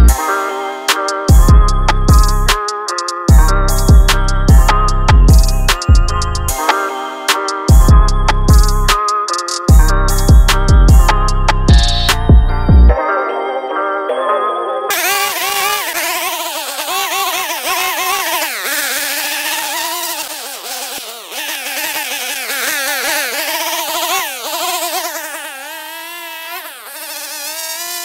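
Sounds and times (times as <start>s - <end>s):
string trimmer engine running: 14.9s - 28.0s.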